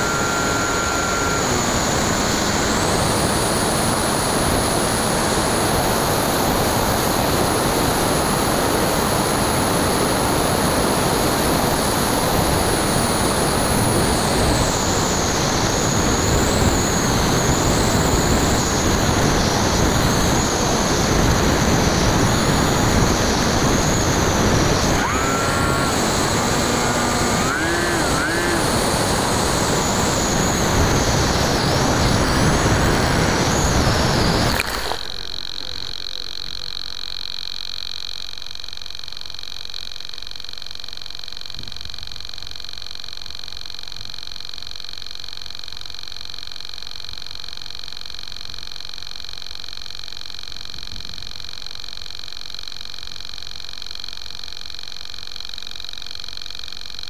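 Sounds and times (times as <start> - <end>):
electric motor whine: 0.0 - 57.0
wind rush over airframe: 1.4 - 35.0
short rising tones: 24.7 - 31.1.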